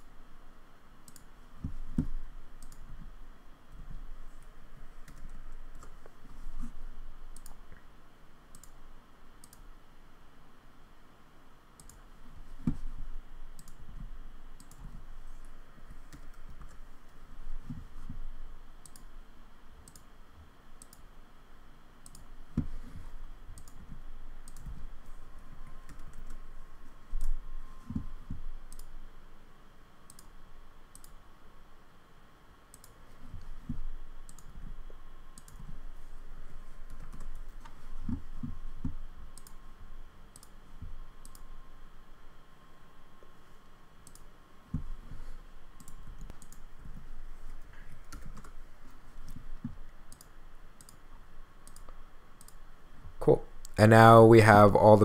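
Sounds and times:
mouse and keyboard clicks: 23.6s - 24.8s.

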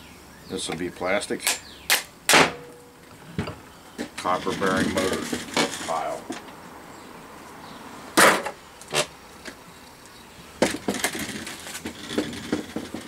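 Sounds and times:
motor parts knocking and clattering: 10.6s - 13.0s.

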